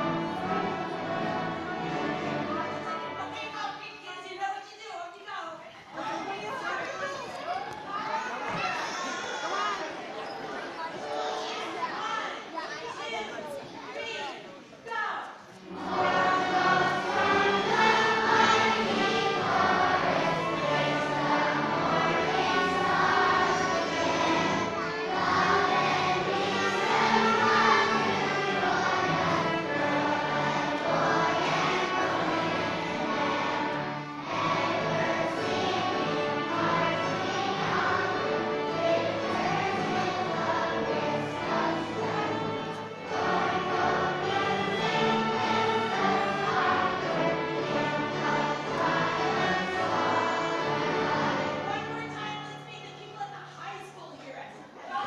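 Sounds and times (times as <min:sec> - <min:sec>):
string orchestra playing: 0:00.0 - 0:03.5, 0:15.7 - 0:53.0
children's choir singing: 0:00.0 - 0:14.6, 0:15.3 - 0:55.0.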